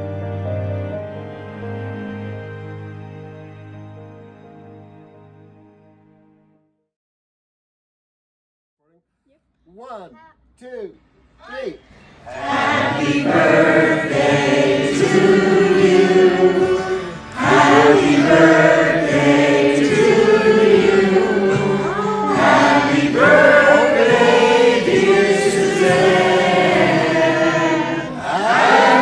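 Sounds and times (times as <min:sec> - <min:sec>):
group of voices singing: 0:12.2 - 0:29.0.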